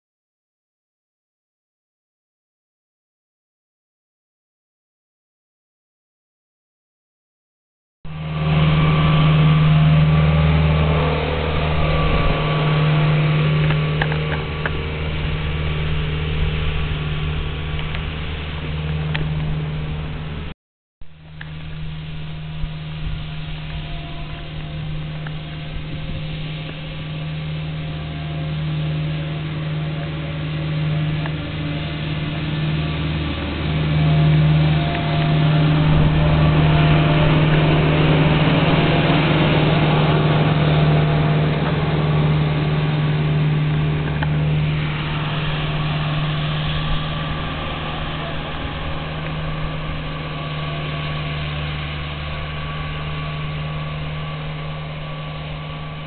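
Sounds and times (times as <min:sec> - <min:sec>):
street sweeper humming: 0:08.1 - 0:20.5, 0:21.1 - 0:56.0
brooms hissing on pavement: 0:21.3 - 0:56.0.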